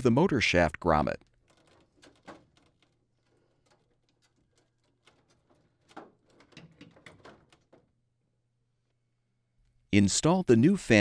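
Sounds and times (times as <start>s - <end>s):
plastic parts clicking and knocking: 1.2s - 8.0s.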